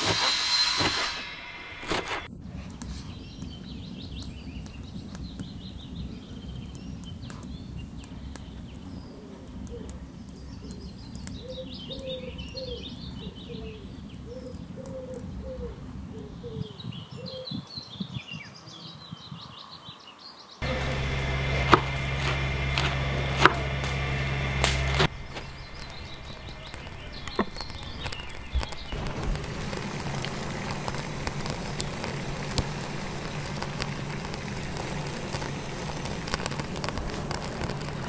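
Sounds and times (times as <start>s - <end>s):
steady low rumble: 1.2s - 17.2s, 20.6s - 38.0s
birds chirping and singing: 2.5s - 36.6s.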